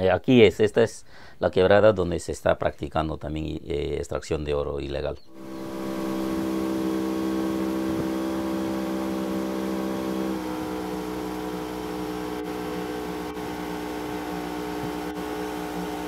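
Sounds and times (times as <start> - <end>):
small engine droning: 5.3 - 16.0.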